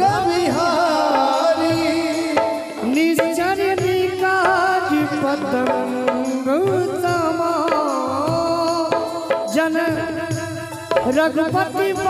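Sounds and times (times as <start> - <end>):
tabla and dholak drumming: 0.0 - 12.0.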